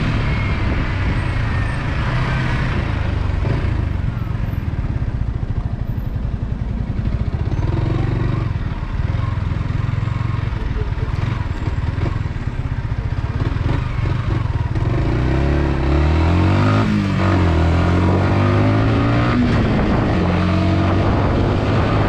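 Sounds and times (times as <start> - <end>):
wind rush on microphone: 0.0 - 3.6, 18.2 - 22.0
motorcycle engine running: 0.0 - 22.0.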